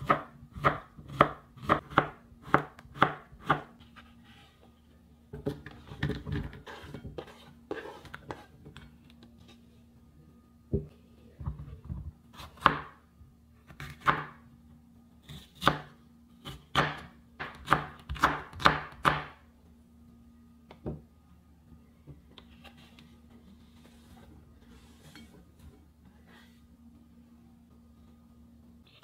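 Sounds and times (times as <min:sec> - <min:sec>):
knife chopping on wooden board: 0:00.0 - 0:03.7, 0:13.8 - 0:14.3, 0:16.7 - 0:19.3.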